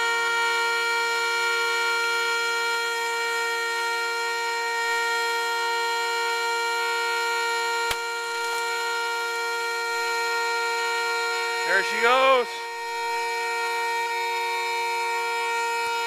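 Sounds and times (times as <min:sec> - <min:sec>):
vehicle horn sounding continuously: 0:00.0 - 0:16.0
sharp pop: 0:07.9 - 0:08.1.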